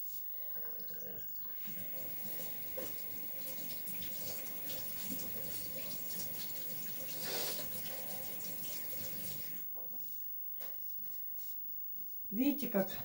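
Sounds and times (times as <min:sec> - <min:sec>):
tap running over washing hands: 0:01.6 - 0:09.6.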